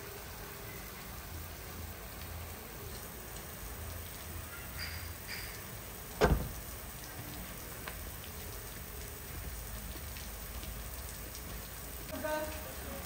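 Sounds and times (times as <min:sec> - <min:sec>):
steady rain falling: 0:00.0 - 0:13.0
sharp thump: 0:06.2 - 0:06.6.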